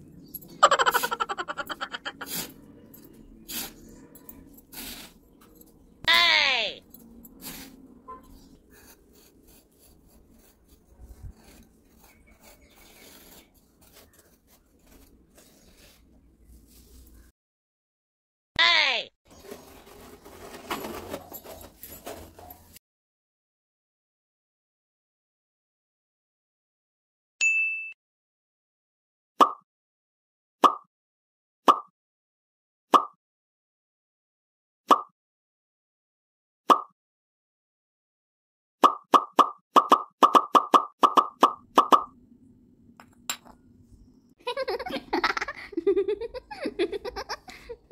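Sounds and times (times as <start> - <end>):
metal scraper scraping damp sand: 3.4 - 3.9, 4.6 - 5.2, 7.4 - 16.9, 19.3 - 22.8.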